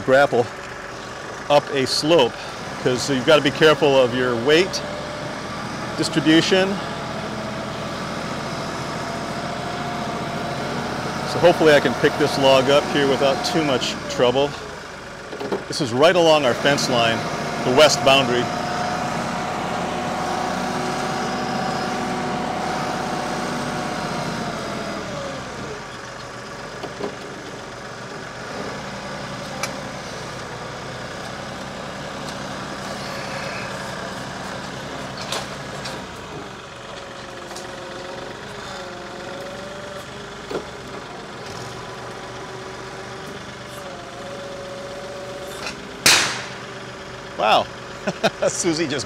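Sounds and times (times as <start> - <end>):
tractor engine running: 0.0 - 49.0
hydraulic whine: 31.6 - 47.1
sharp knocks: 46.0 - 46.7.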